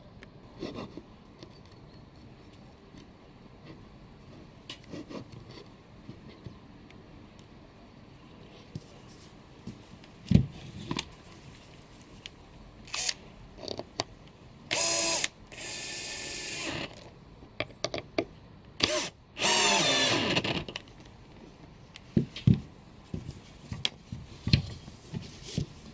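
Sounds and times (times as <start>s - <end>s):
cordless drill running: 12.9s - 13.2s, 14.7s - 17.0s, 18.8s - 20.4s.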